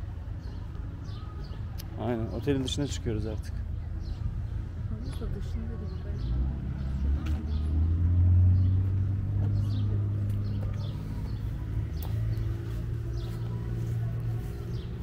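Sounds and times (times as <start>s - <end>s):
small birds chirping: 0.0s - 15.0s
car engine humming: 2.4s - 15.0s.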